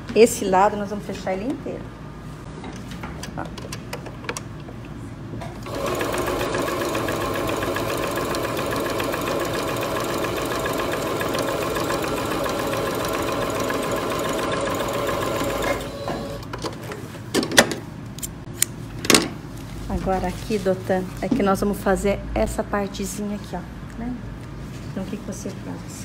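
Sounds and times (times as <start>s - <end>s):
sewing machine stitching: 5.6s - 16.5s.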